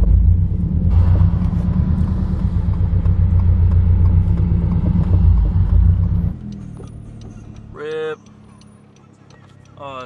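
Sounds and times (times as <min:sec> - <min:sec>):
car engine rumble: 0:00.0 - 0:10.0.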